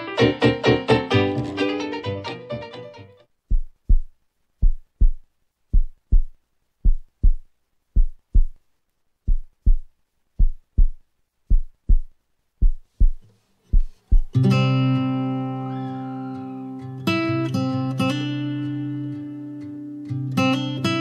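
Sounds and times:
heartbeat thumps: 3.5s - 8.6s, 9.2s - 14.4s.

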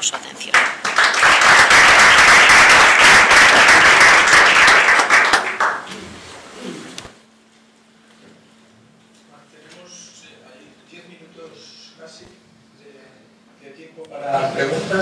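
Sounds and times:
audience applauding: 0.5s - 5.9s.

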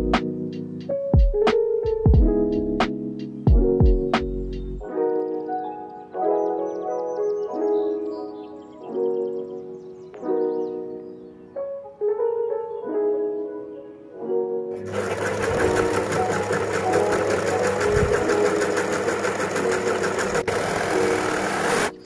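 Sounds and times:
light background music: 0.0s - 22.0s
overlock machine running: 14.8s - 22.0s.

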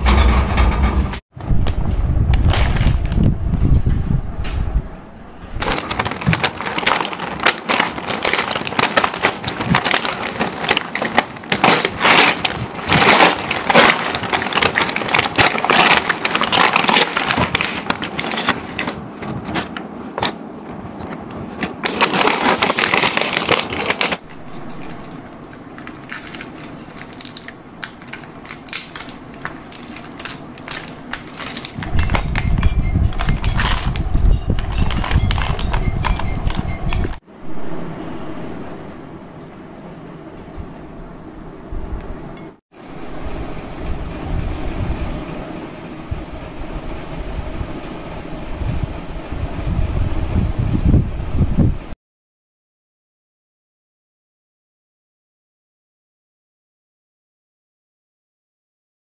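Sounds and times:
plastic wrapping crackle: 5.6s - 19.8s, 21.5s - 37.2s
paper bag crinkling: 5.6s - 20.4s, 21.0s - 37.2s
low rumble: 31.8s - 39.4s.

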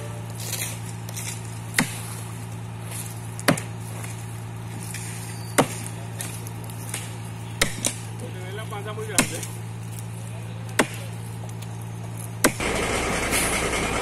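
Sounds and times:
steady low hum: 0.0s - 14.0s
axe chopping wood: 1.7s - 2.2s, 3.4s - 4.1s, 5.5s - 6.3s, 6.9s - 8.1s, 9.1s - 9.5s, 10.7s - 11.1s, 12.4s - 12.7s.

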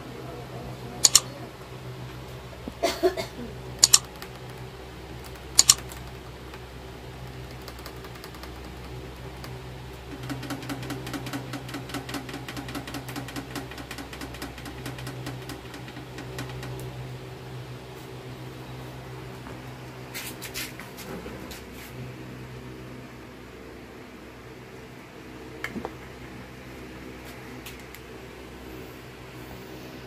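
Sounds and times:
steady low hum: 0.0s - 30.0s
sharp clicks: 1.0s - 1.3s, 3.8s - 4.6s, 5.2s - 6.2s.

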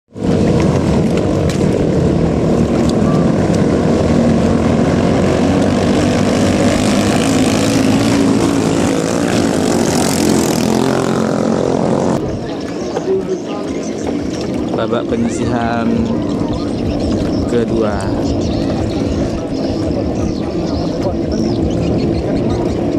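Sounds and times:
boat engine running flat out: 0.1s - 22.9s.

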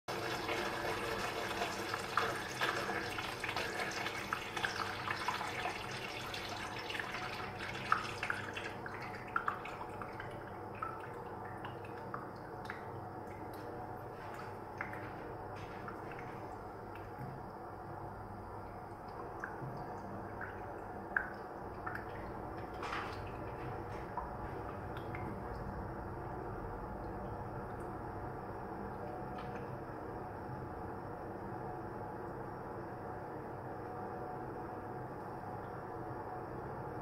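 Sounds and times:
water running and dripping: 0.1s - 17.6s, 18.6s - 28.0s.

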